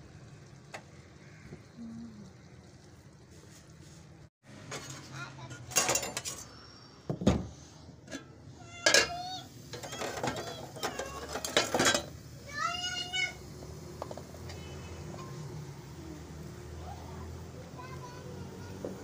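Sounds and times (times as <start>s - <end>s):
dishes and utensils clattering: 4.6s - 6.5s, 8.1s - 12.2s, 14.0s - 15.4s.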